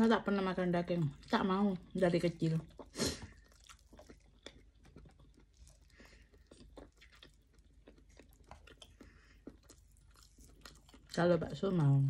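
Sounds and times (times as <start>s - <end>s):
faint chewing clicks: 2.6s - 11.6s.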